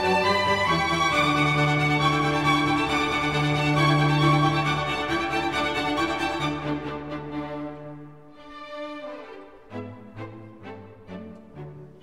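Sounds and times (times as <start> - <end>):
held string notes: 0.0 - 12.0.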